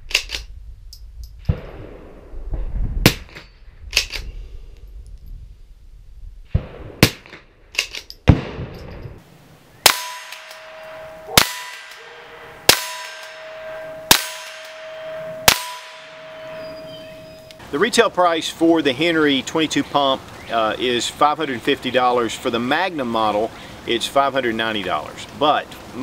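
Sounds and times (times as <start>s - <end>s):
rifle shots: 9.8s - 16.7s
steady ringing tone: 9.8s - 17.6s.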